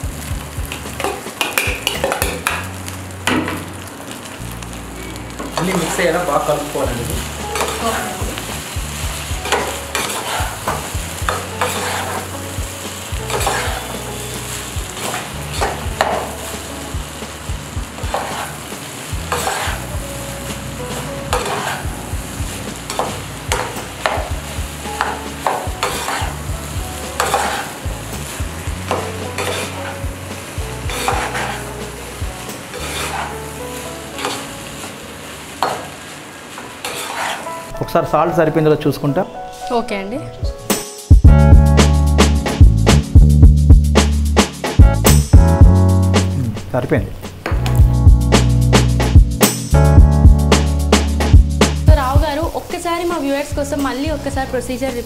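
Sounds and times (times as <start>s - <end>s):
hot oil sizzling: 0.0s - 38.8s, 41.1s - 55.0s
spoon scraping a pot: 9.5s - 10.5s, 11.6s - 12.3s, 13.3s - 13.8s, 19.3s - 19.8s, 21.3s - 21.9s, 25.8s - 26.3s, 27.2s - 27.8s, 29.4s - 30.0s, 30.9s - 31.7s, 32.7s - 33.4s, 36.8s - 37.5s.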